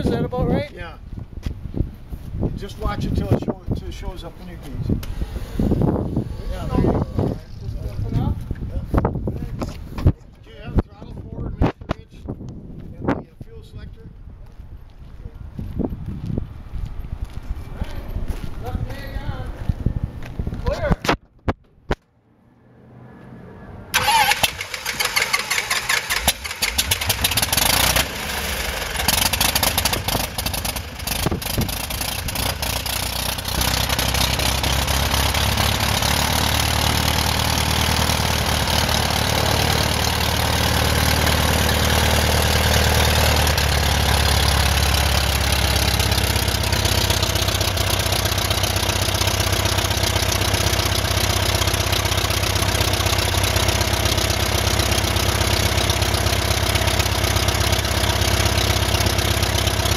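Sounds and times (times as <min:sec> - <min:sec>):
aircraft engine running: 0:23.9 - 0:59.9.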